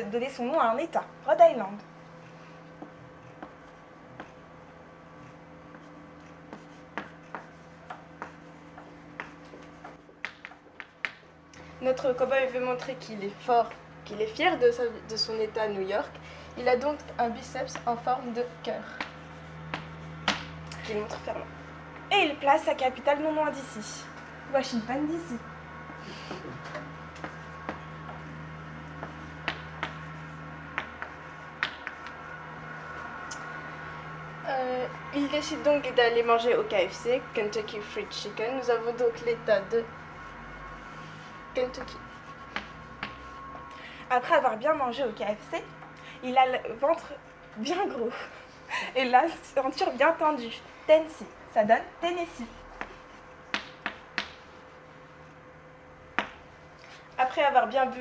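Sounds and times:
faint room hum: 0:00.0 - 0:58.0
chalk tapping on blackboard: 0:05.7 - 0:11.2, 0:19.0 - 0:21.2, 0:29.0 - 0:32.2, 0:41.7 - 0:43.4, 0:52.8 - 0:54.5.

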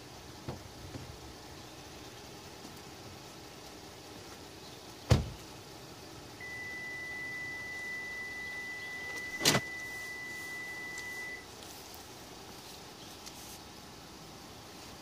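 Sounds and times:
high electronic beep: 0:06.4 - 0:11.4.

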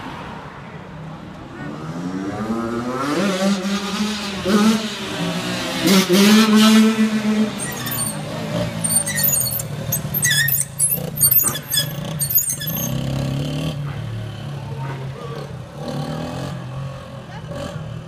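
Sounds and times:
short high squeaks: 0:07.6 - 0:13.1.

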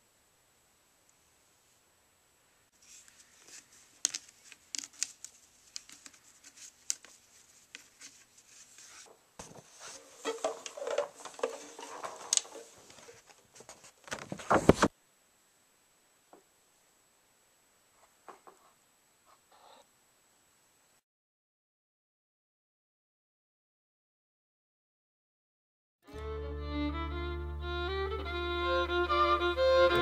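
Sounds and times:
rosin rubbing on bow hair: 0:02.8 - 0:09.1.

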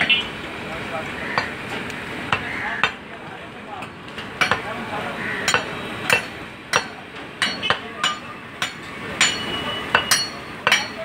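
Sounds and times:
cleaver chopping meat on wood: 0:01.3 - 0:01.6, 0:02.3 - 0:03.0, 0:04.4 - 0:04.7, 0:05.4 - 0:10.9.

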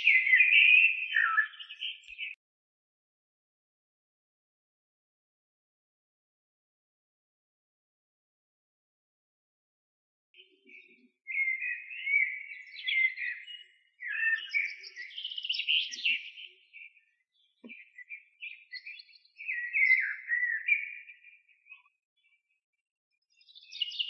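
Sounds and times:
songbird warbling: 0:00.0 - 0:02.4, 0:10.7 - 0:16.5, 0:17.6 - 0:20.9.

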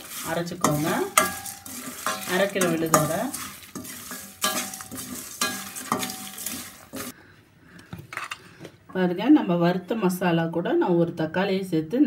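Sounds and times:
spatula scraping in a steel pan: 0:00.0 - 0:07.1
spices crackling in a pan: 0:00.0 - 0:07.2.

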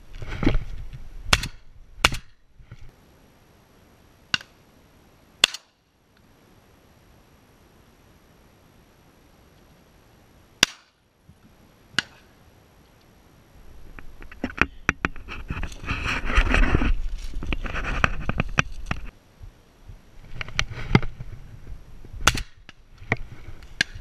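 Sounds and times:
dry crop stalks rustling: 0:13.7 - 0:19.2.

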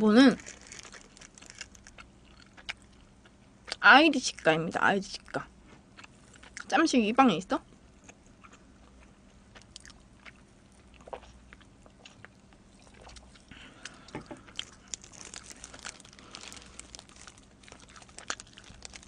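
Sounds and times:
biting and chewing pizza: 0:00.4 - 0:03.4, 0:08.0 - 0:19.0.

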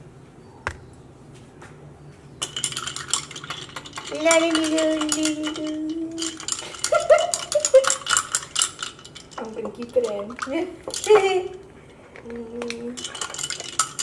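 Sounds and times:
spoon and ice clinking in glass: 0:02.4 - 0:11.6, 0:12.2 - 0:14.0.

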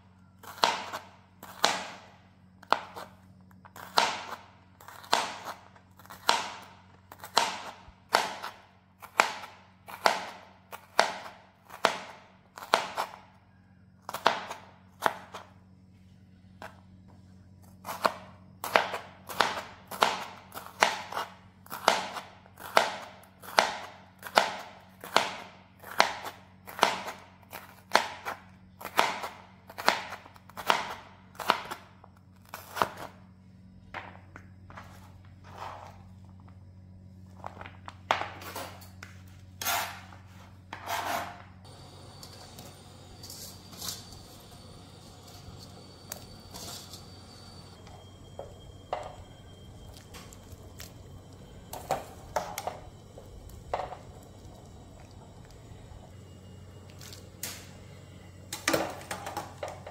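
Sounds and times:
knife crunching through vegetable: 0:03.8 - 0:13.2, 0:32.4 - 0:33.1.

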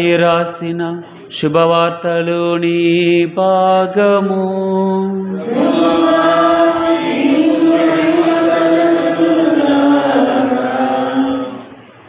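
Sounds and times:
liturgical chant on held notes: 0:00.0 - 0:12.0.

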